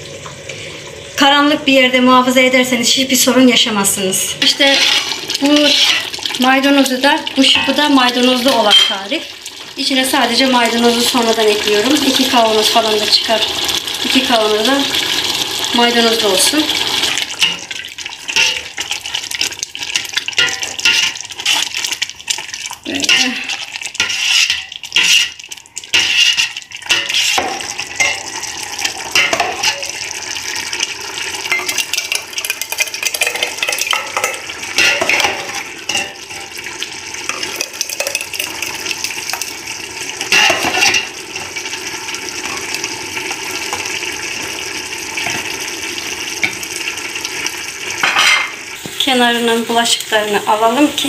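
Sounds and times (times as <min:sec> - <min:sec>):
metal ladle scraping a pot: 0:04.4 - 0:06.2, 0:16.9 - 0:19.1, 0:20.2 - 0:21.8, 0:23.0 - 0:30.0, 0:31.5 - 0:36.6, 0:40.2 - 0:41.6
sauce simmering hiss: 0:09.1 - 0:33.8, 0:41.1 - 0:51.0.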